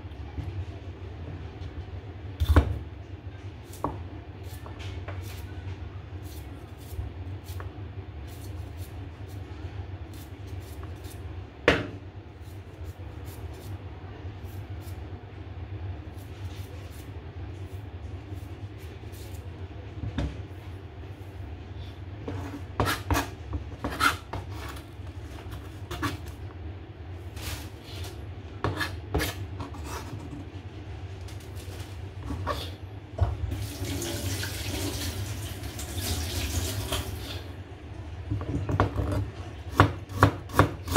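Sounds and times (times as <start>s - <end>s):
tap water running: 33.3s - 37.5s.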